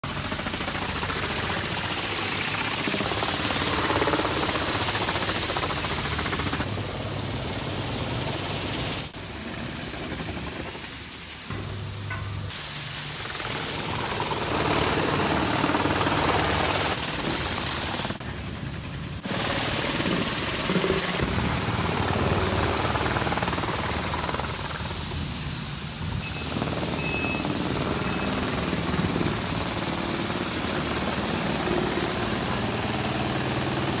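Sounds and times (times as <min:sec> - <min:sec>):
motor running: 0:00.1 - 0:10.8, 0:13.2 - 0:18.2
water jets spraying hiss: 0:00.2 - 0:18.2, 0:19.2 - 0:33.9.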